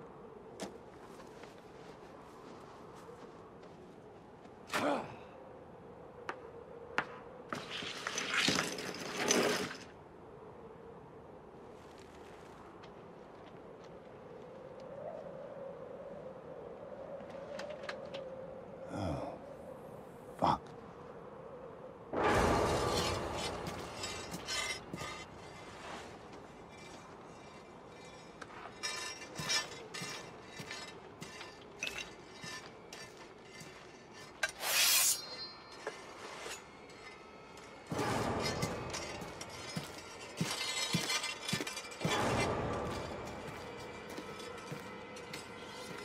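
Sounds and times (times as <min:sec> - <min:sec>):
ice cracking: 0:07.6 - 0:09.9
quiet tense music: 0:10.0 - 0:34.6, 0:35.2 - 0:46.0.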